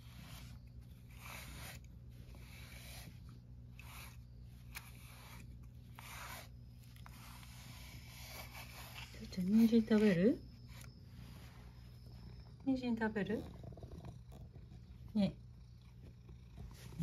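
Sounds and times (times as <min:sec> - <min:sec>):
soft rubbing strokes: 0:00.0 - 0:12.6.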